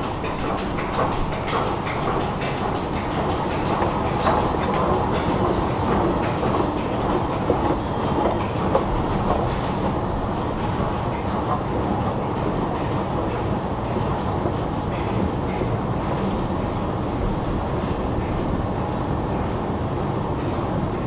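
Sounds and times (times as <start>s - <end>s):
escalator rumbling: 0.0s - 14.7s
escalator steps clicking: 0.0s - 19.6s.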